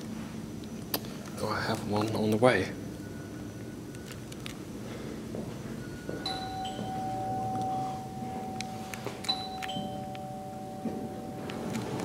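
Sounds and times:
elevator arrival chime: 5.6s - 12.0s.

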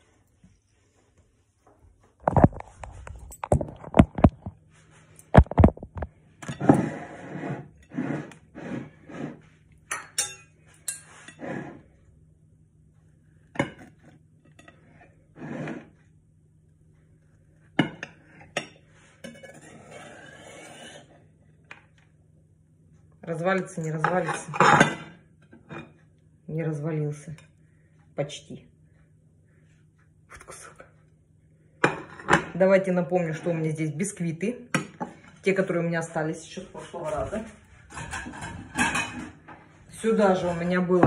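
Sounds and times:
knife clinking on ceramic plate: 9.9s - 11.3s
knife blade scraping plate: 19.2s - 21.2s.

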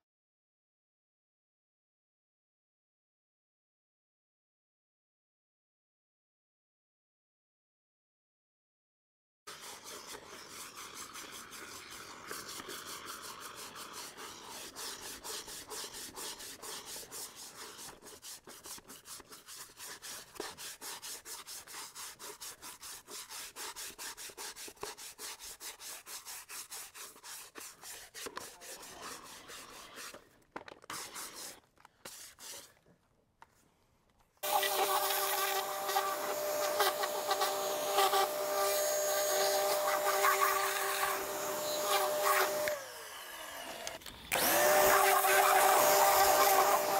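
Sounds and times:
fast scrubbing strokes: 9.5s - 30.3s, 34.4s - 43.1s, 44.4s - 46.9s
vacuum motor whining: 34.4s - 46.9s.

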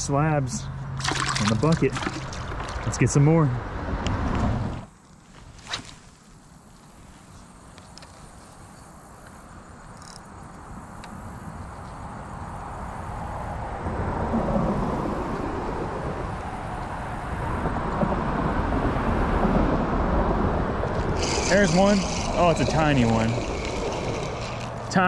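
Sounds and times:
vehicle approaching: 13.8s - 25.0s.

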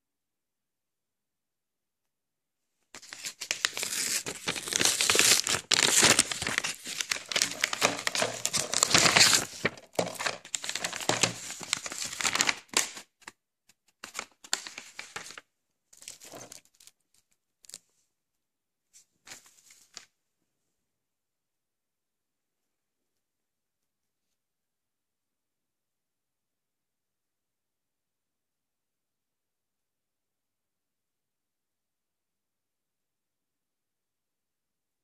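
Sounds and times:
paper envelope tearing: 3.0s - 13.1s, 14.0s - 15.4s
paper rustling: 3.0s - 15.4s, 16.0s - 17.9s, 19.0s - 20.1s.

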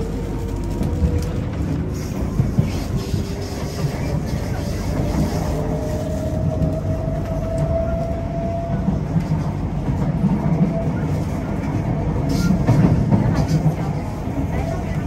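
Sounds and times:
train wheels rumbling on track: 0.0s - 15.0s.

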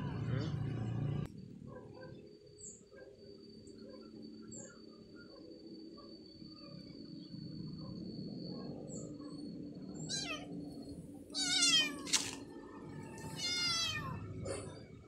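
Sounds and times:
kittens meowing: 10.0s - 10.5s, 11.3s - 12.2s, 13.2s - 14.3s.

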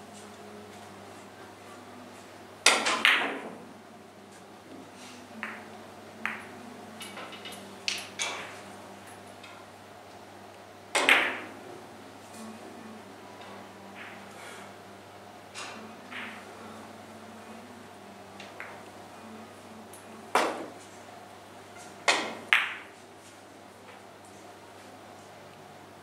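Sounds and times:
billiard balls clicking: 5.4s - 9.6s, 11.0s - 11.5s, 22.0s - 22.9s.

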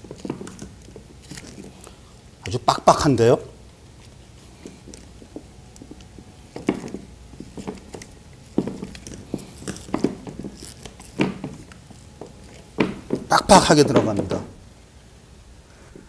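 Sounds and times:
plastic and rubber rubbing and knocking: 0.0s - 1.7s, 4.6s - 14.6s.

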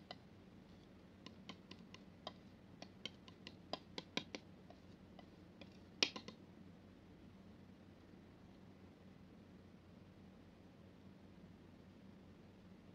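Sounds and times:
palette knife clicking in wet paint: 1.2s - 6.4s.

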